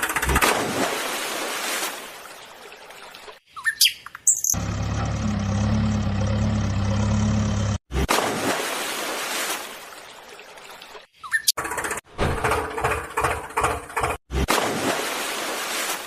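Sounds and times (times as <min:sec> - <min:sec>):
bird chirps: 0:03.5 - 0:04.6, 0:11.2 - 0:11.6.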